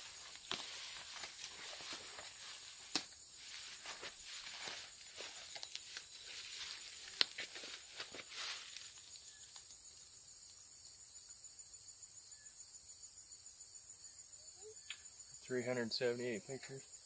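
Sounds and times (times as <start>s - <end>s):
high-pitched insect chorus: 0.0s - 17.0s.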